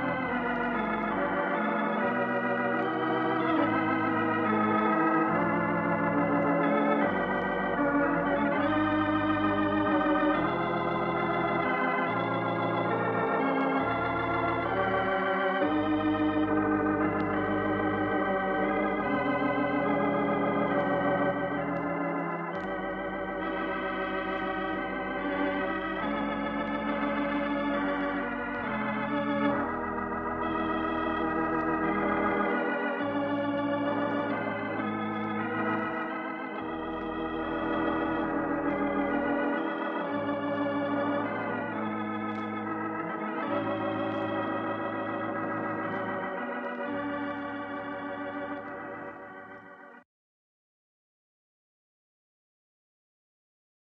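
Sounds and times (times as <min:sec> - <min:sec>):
organ chords: 0:00.0 - 0:50.0.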